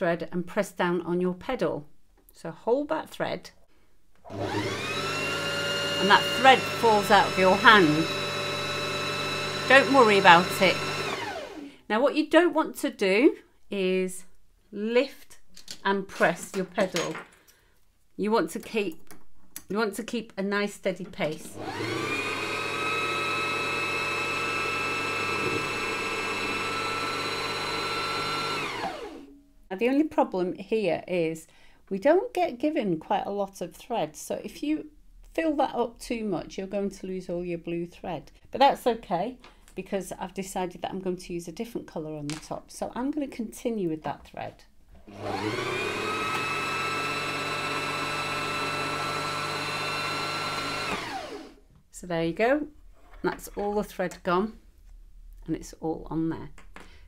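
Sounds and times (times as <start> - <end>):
sewing machine motor whining: 4.3 - 11.7, 21.5 - 29.3, 45.1 - 51.6.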